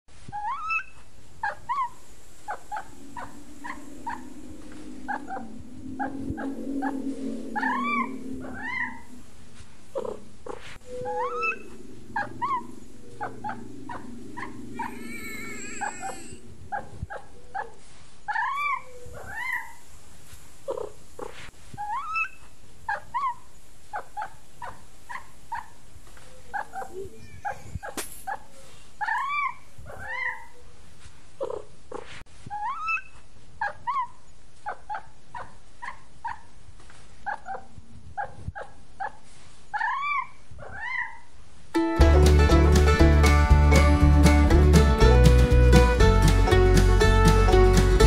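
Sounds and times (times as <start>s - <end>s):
low steady rumble: 2.0s - 17.4s.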